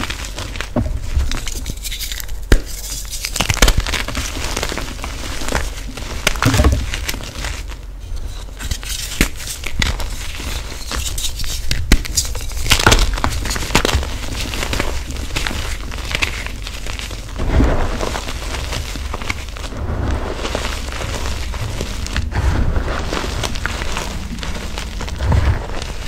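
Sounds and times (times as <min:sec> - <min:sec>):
chalk crunching and crumbling: 0:00.0 - 0:26.0
powder rustling between fingers: 0:00.0 - 0:26.0
chalk pieces snapping: 0:01.4 - 0:04.1, 0:08.6 - 0:14.0.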